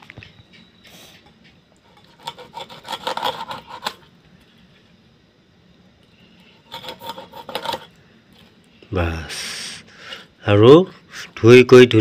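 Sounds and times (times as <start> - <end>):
fish scraped against metal blade: 2.0 - 4.0, 6.6 - 7.9.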